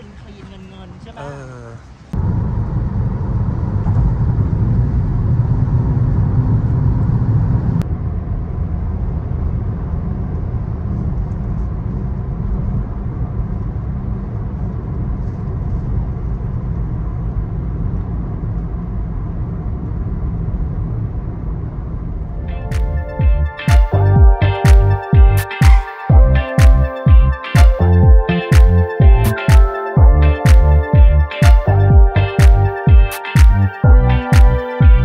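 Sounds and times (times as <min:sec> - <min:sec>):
road and engine noise in car: 0:00.0 - 0:23.2.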